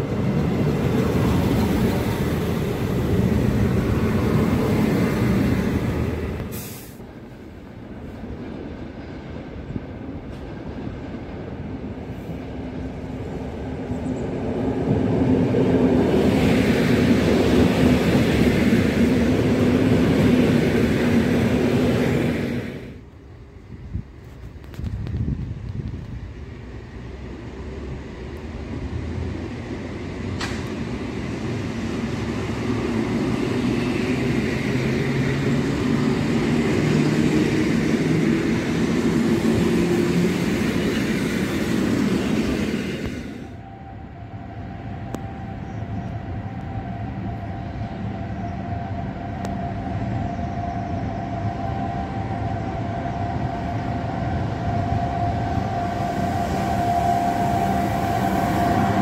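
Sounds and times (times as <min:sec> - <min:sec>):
electric locomotive approaching: 0:00.0 - 0:59.0
electric train running past: 0:00.0 - 0:59.0
steady high whine: 0:40.4 - 0:59.0.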